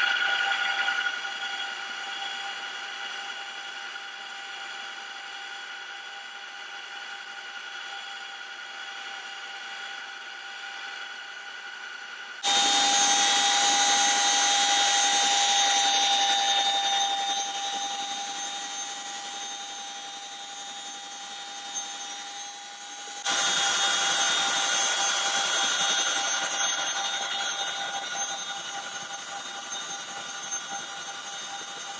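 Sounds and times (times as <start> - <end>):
helicopter turbine whine: 0.0 - 31.9.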